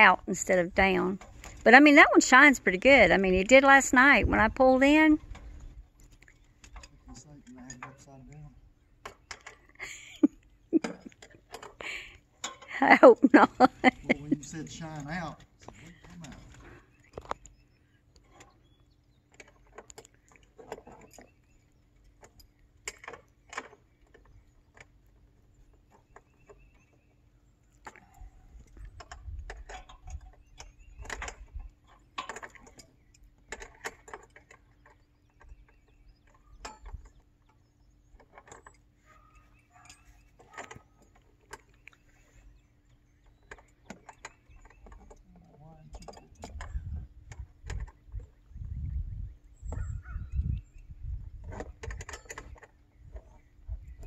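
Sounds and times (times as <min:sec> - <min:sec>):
low microphone rumble: 0:46.5 - 0:51.8.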